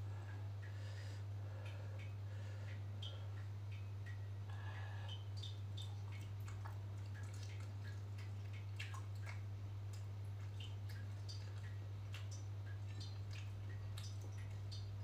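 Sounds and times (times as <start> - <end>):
steady low hum: 0.0 - 15.0
wet chewing and lip-smacking: 5.1 - 14.9.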